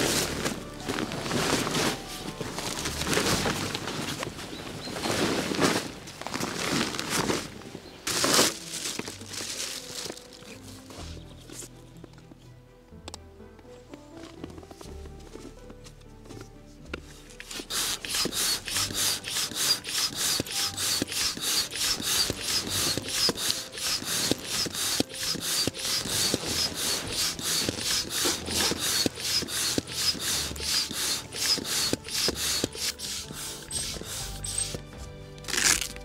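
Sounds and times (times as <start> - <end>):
hand air pump hissing: 0.0 - 3.8, 17.4 - 34.9.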